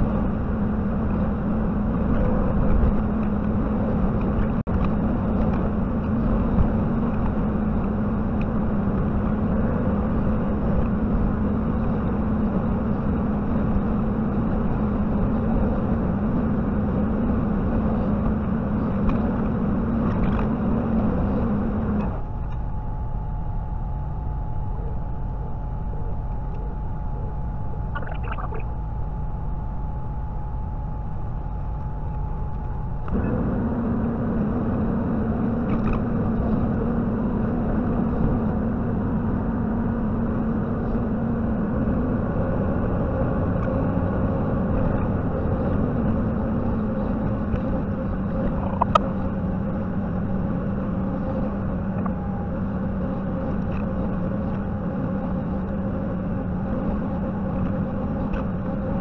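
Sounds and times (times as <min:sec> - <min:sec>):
diesel engine droning: 0:00.0 - 0:28.8, 0:31.6 - 0:59.0
steady higher whine: 0:00.0 - 0:59.0.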